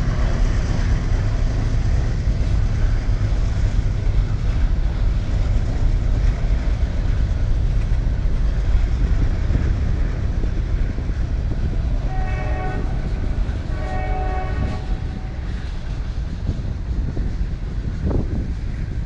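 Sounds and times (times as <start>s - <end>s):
freight train cars rumbling: 0.0s - 19.0s
locomotive horn blasts: 12.0s - 15.5s.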